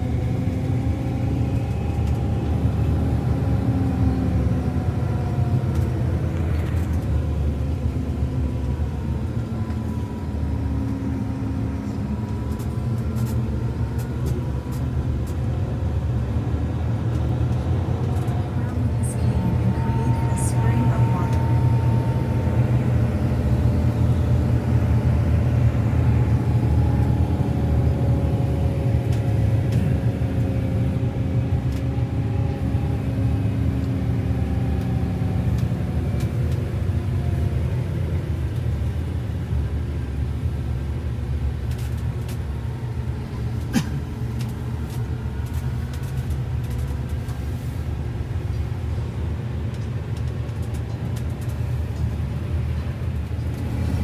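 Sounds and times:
bus engine and road rumble: 0.0 - 54.0
faint hum dropping in pitch: 18.7 - 27.8.

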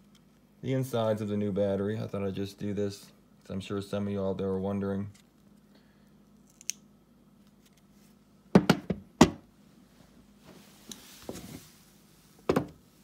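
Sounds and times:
hard plastic knocks on wood: 8.5 - 9.4.

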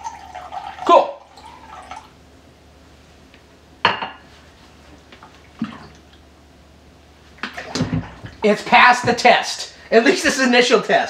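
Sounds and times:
water pouring into a glass: 0.0 - 2.1.

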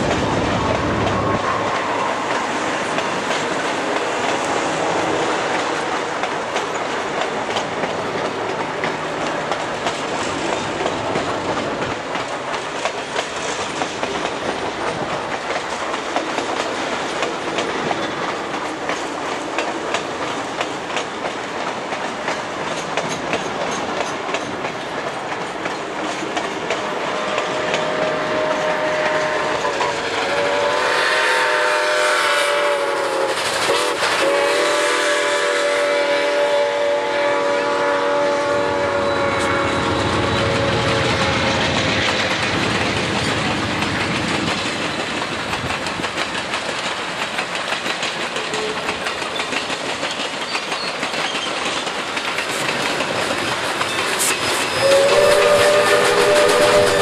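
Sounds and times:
model train wheels rattling and clicking: 5.4 - 27.8, 40.6 - 57.0
locomotive multi-tone signal: 27.0 - 41.7, 53.8 - 57.0.

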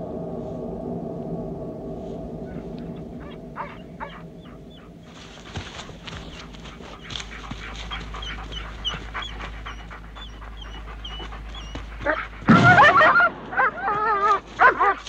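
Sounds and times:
dog whining and yelping: 2.9 - 15.0
dog panting: 3.2 - 15.0.

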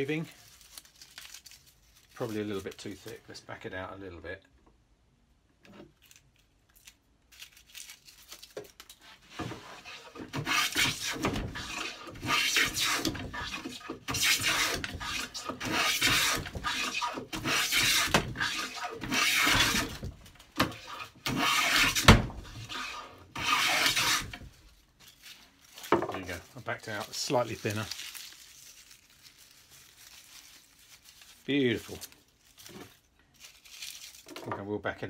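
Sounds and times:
hand plane rasping strokes: 9.3 - 24.5.

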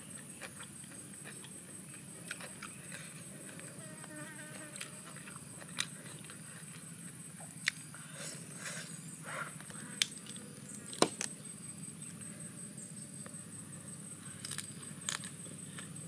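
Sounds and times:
high insect drone: 0.0 - 16.0
leafy greens snapping: 14.4 - 15.3.

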